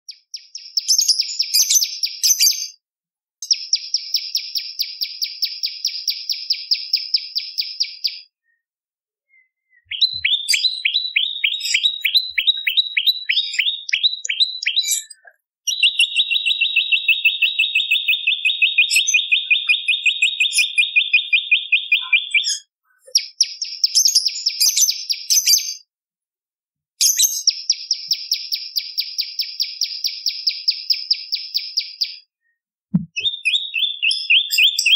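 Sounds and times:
bird trilling: 9.3 - 23.4
bird downward-sweeping chirps: 9.3 - 23.8.

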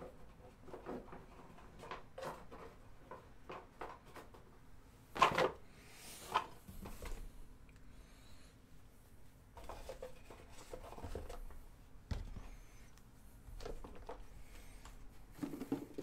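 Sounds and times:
box and supplies clattering: 15.3 - 16.0.

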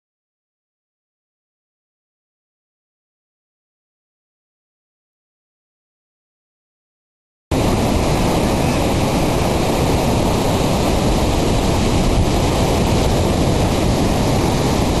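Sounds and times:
steady static-like rushing noise: 7.5 - 15.0.

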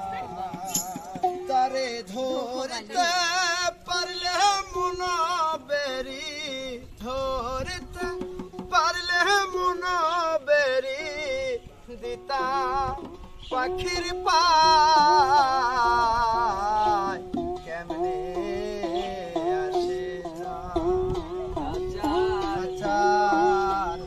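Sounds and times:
hand drums: 0.0 - 5.4, 6.0 - 24.0
man singing folk song: 0.0 - 24.0
tambourine: 0.6 - 1.3.

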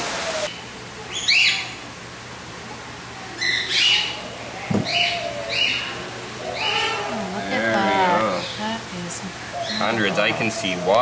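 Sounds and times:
bird chirping: 9.5 - 11.0.

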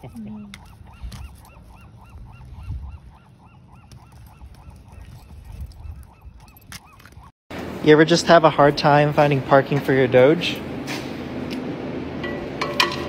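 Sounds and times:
wind rumbling on microphone: 0.0 - 7.3.

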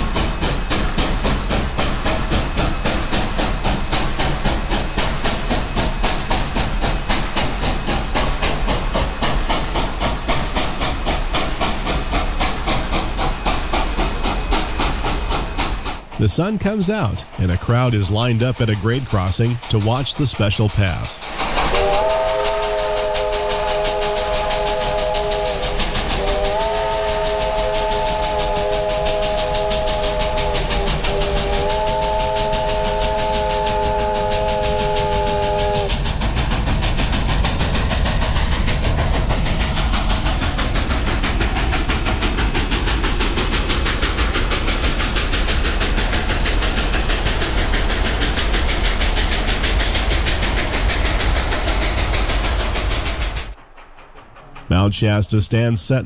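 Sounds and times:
steam locomotive passing: 0.0 - 56.0
steam whistle blasts: 21.5 - 36.0.

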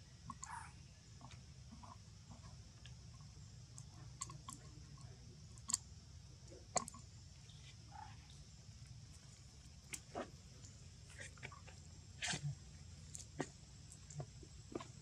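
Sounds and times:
low steady hum: 0.0 - 15.0
faint clicks and ticks: 0.2 - 5.9, 6.5 - 7.5.

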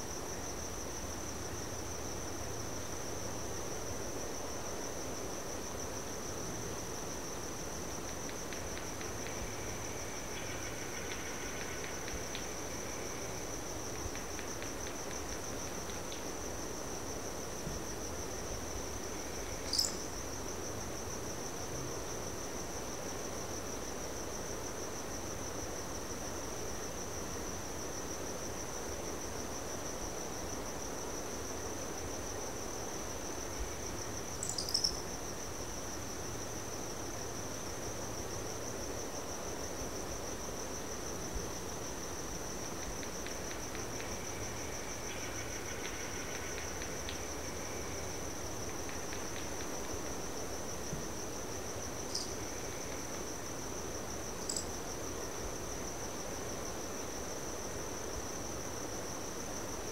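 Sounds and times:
crickets trilling: 0.0 - 59.9
soft breeze: 0.0 - 59.9.

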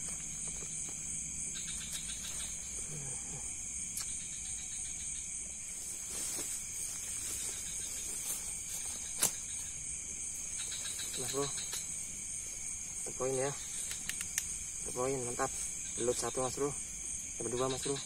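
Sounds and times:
crickets trilling: 0.0 - 18.0
insects buzzing: 0.0 - 18.0
sharp click: 13.8 - 14.6.

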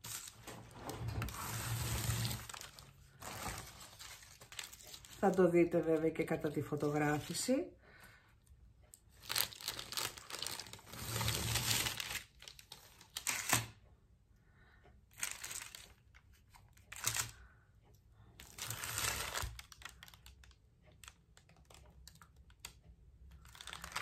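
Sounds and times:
sheet rustling and crinkling: 0.0 - 7.6, 9.2 - 13.6, 23.4 - 24.0.

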